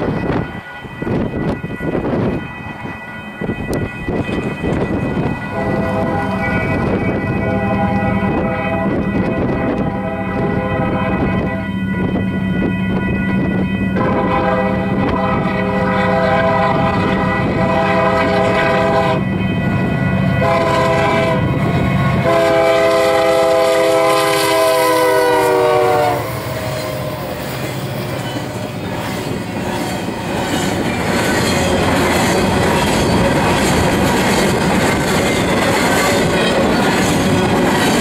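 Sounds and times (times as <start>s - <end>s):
locomotive air horn blasts: 5.4s - 11.8s, 14.0s - 19.3s, 20.3s - 27.0s
rail cars clattering over joints: 26.4s - 38.0s.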